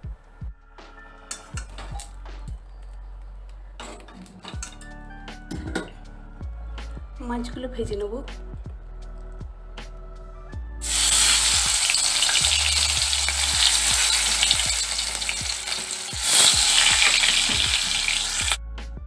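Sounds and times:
fish sizzling in hot oil: 0:10.8 - 0:18.6.

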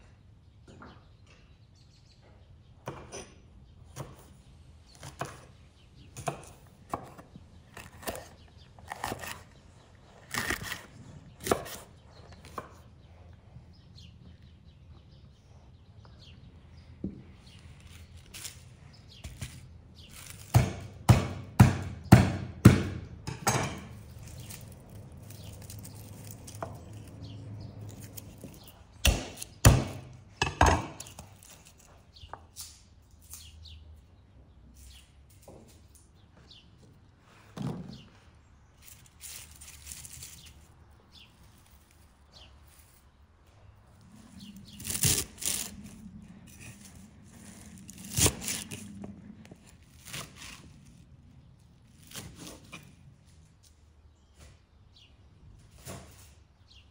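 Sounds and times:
knife chopping on wooden board: 0:05.0 - 0:05.5, 0:20.2 - 0:23.9, 0:28.4 - 0:31.2
peeling garlic: 0:06.2 - 0:12.6, 0:17.4 - 0:21.8, 0:23.8 - 0:30.2, 0:31.0 - 0:33.6, 0:38.8 - 0:43.1, 0:44.0 - 0:53.4.

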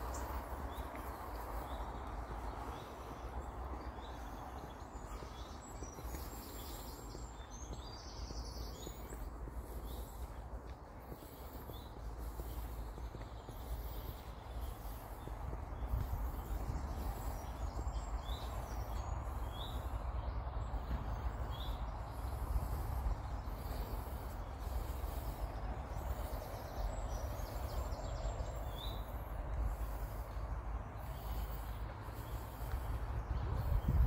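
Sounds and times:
outdoor background rumble and hiss: 0:00.0 - 0:34.0.

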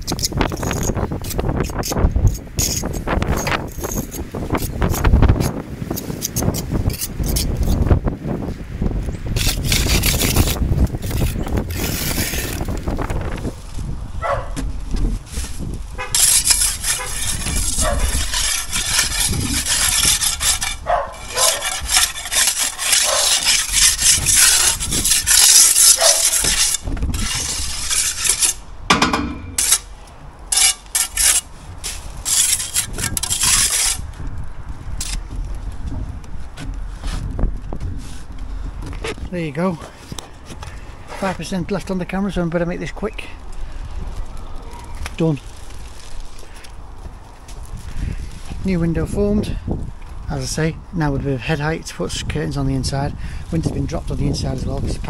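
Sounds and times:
trowel scraping concrete: 0:00.0 - 0:07.8, 0:09.4 - 0:13.0, 0:15.3 - 0:29.9, 0:30.5 - 0:34.1, 0:35.0 - 0:35.2
wind buffeting microphone: 0:00.0 - 0:30.6, 0:31.4 - 0:42.5, 0:43.1 - 0:55.0.

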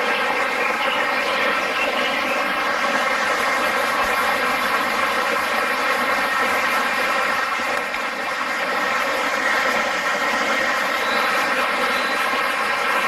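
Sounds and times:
stream water rushing: 0:00.0 - 0:13.0.

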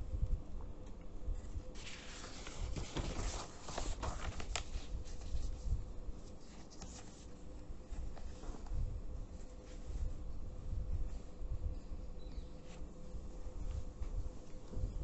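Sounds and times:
paper sheets rustling: 0:01.8 - 0:08.8.

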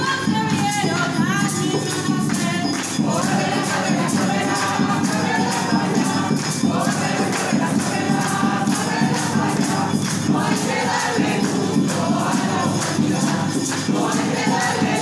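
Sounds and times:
group of voices singing: 0:00.0 - 0:15.0
hand drum rhythm: 0:00.0 - 0:15.0.

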